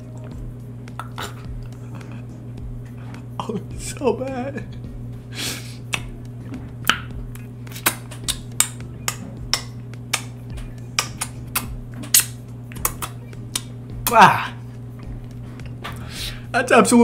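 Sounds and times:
low electrical hum: 0.0s - 17.0s
wet mouth clicks and lip smacks: 6.9s - 10.3s, 11.0s - 13.7s.

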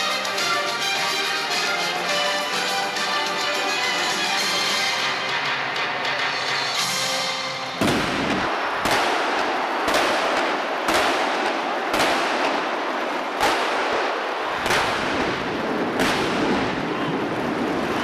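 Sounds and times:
continuous noisy haze: 0.0s - 18.0s
firework shells bursting: 7.8s - 17.0s.

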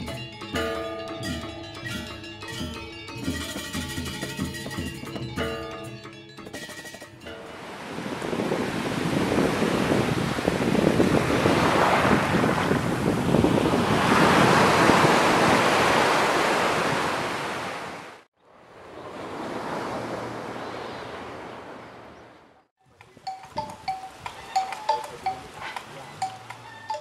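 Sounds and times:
ocean surf breaking on beach: 7.3s - 22.2s.

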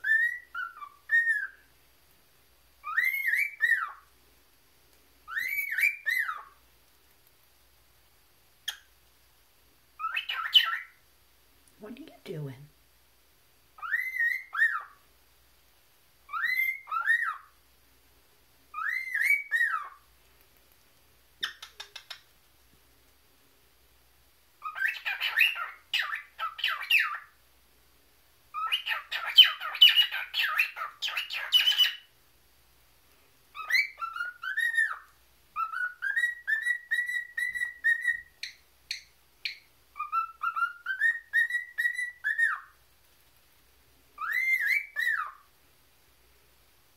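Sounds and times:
cockatiel whistling: 0.0s - 1.6s, 2.8s - 4.0s, 5.2s - 6.6s, 10.0s - 11.0s, 13.8s - 15.0s, 16.3s - 17.5s, 18.7s - 20.0s, 24.6s - 27.3s, 28.5s - 32.1s, 33.5s - 42.8s, 44.2s - 45.4s.

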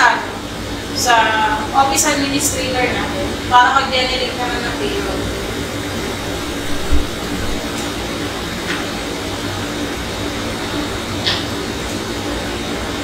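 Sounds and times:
steady hissing noise: 0.1s - 13.0s
low thump: 6.3s - 7.6s.

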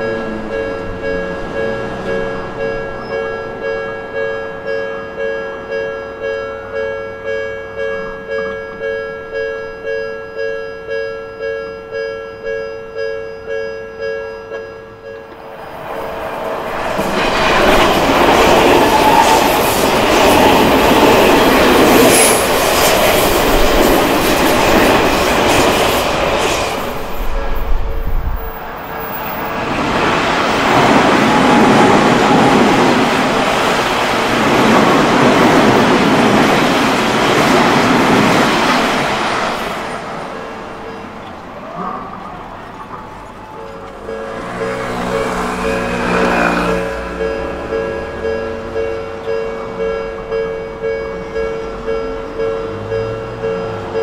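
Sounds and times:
level-crossing bell ringing: 0.0s - 15.8s
electric train passing: 0.0s - 54.0s.

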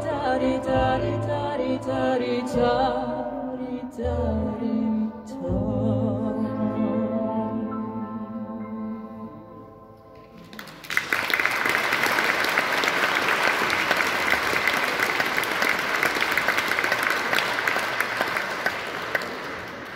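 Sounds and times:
audience applause: 10.3s - 19.9s.

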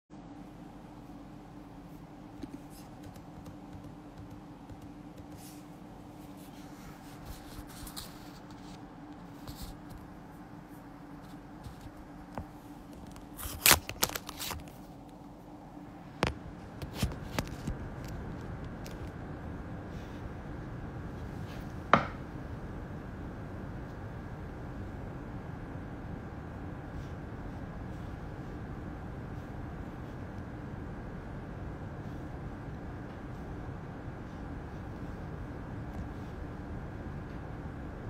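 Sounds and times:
faint room hum: 0.1s - 38.0s.

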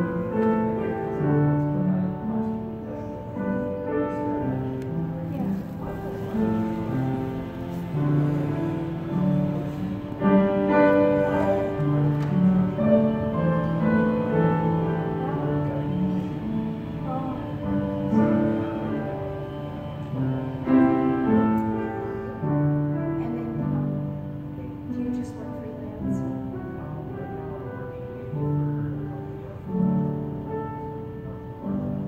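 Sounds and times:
slow piano music: 0.0s - 32.0s.

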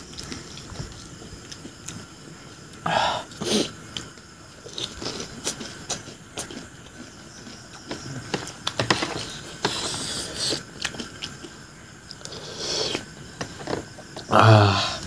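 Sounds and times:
crunching and chewing: 0.0s - 14.3s.

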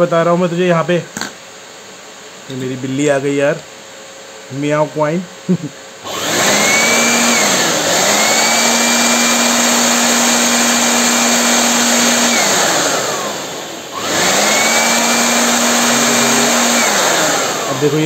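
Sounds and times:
electric air blower whine: 4.0s - 18.0s.

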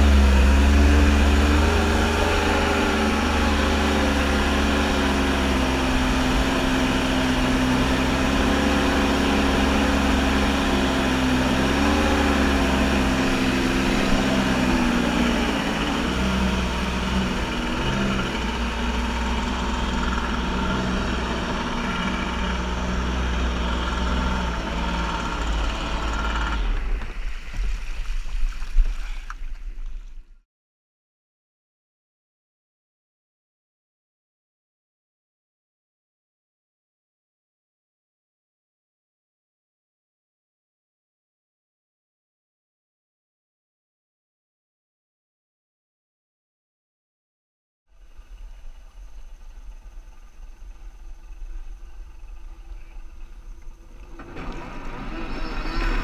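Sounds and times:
jet ski engine running: 0.0s - 27.7s, 48.0s - 56.0s
water splashing: 26.8s - 30.2s.

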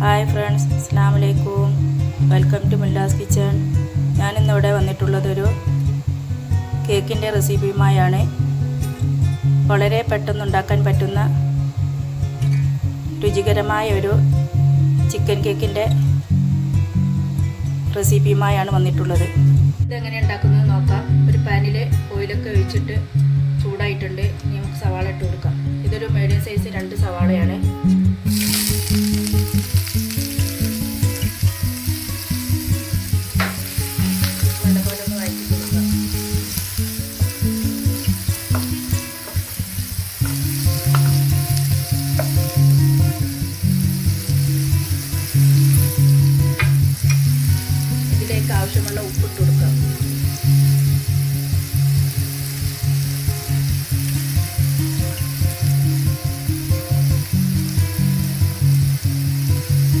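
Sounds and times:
onions sizzling in oil: 0.0s - 19.7s, 26.3s - 60.0s
background music with beat: 25.4s - 60.0s.

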